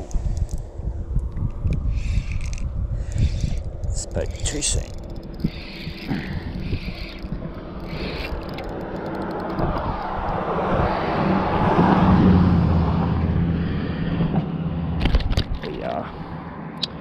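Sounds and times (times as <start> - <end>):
passing vehicle engine and tyres: 0.0 - 17.0
fishing reel cranking: 1.7 - 11.1.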